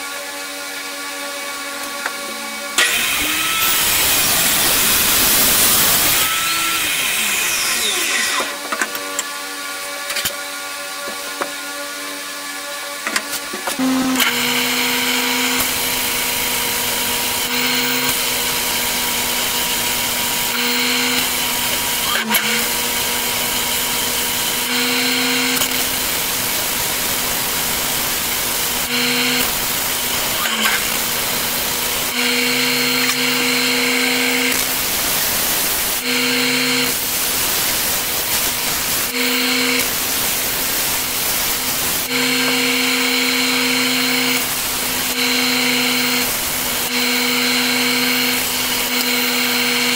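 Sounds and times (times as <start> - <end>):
belt sander motor hum: 2.0 - 9.1, 13.7 - 49.9
wood block sanding hiss: 2.8 - 8.5.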